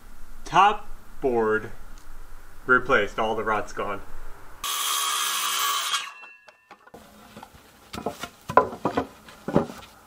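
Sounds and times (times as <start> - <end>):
circular saw cutting wood: 4.6 - 6.3
wooden knocks of lumber: 7.9 - 9.9.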